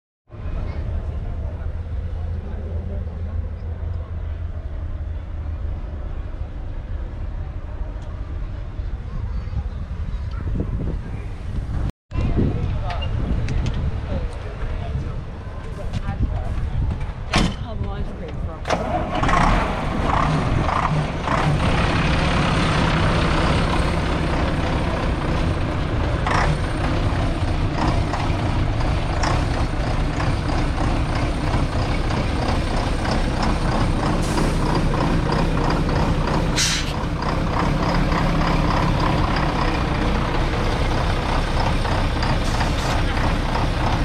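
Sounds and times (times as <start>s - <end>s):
diesel truck engine idling: 19.8s - 44.0s
air hissing: 36.6s - 37.0s.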